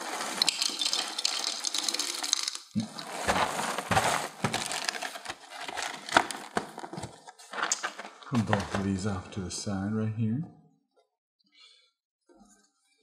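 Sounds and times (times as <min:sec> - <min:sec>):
cereal pouring into glass bowl: 0:00.0 - 0:06.5
cardboard box rustling: 0:00.0 - 0:08.8
plastic bag crinkling: 0:00.0 - 0:08.9.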